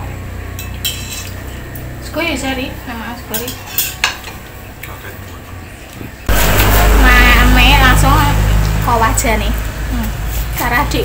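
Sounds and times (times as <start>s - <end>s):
spoons scraping against bowls: 0.6s - 1.6s, 3.3s - 4.4s, 10.0s - 10.9s
low steady hum: 5.6s - 10.3s.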